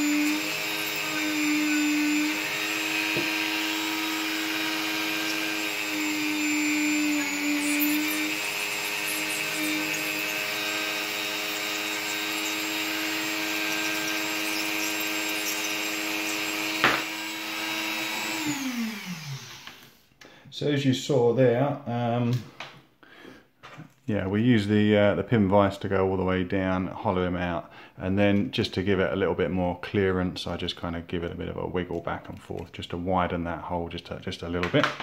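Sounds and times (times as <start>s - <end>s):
rotary tool running: 0.0s - 19.7s.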